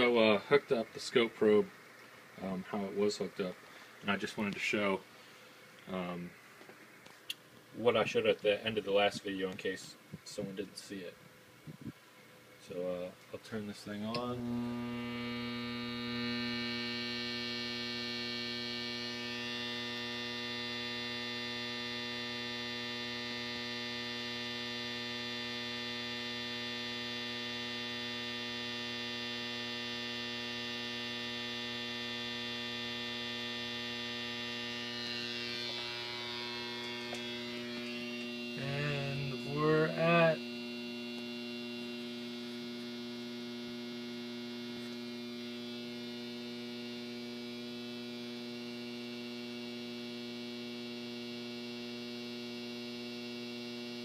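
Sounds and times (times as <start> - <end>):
high-voltage circuit humming: 0.0 - 54.0.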